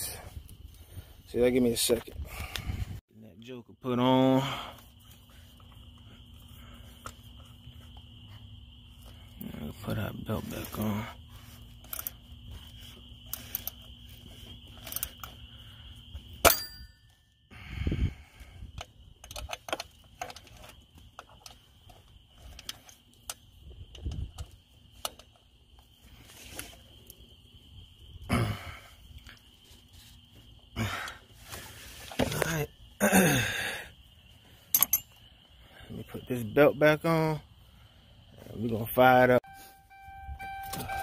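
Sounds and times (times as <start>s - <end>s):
clicks and knocks of belt fitting: 18.8s - 25.4s.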